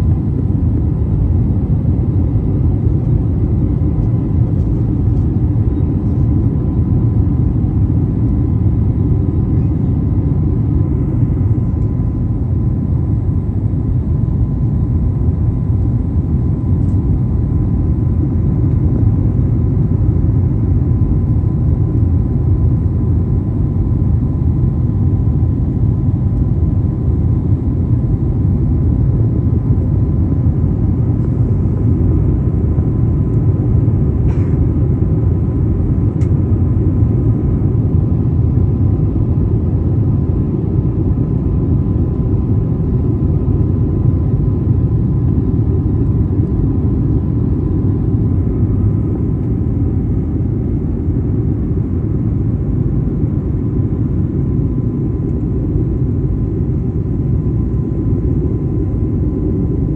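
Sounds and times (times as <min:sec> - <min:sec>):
faint steady whine: 0:00.0 - 0:59.9
jet engine rumble in cabin: 0:00.0 - 0:59.9.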